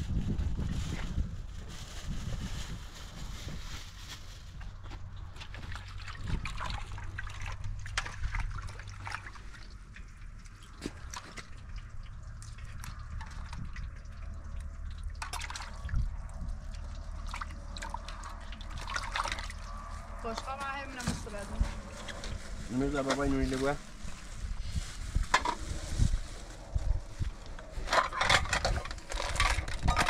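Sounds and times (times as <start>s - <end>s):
water splashing in a metal pot: 5.4s - 20.6s.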